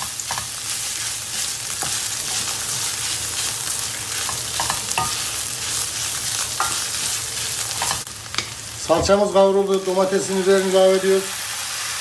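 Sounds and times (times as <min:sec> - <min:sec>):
wooden spoon scraping a pan: 0:00.0 - 0:08.0
food sizzling in a frying pan: 0:00.0 - 0:12.0.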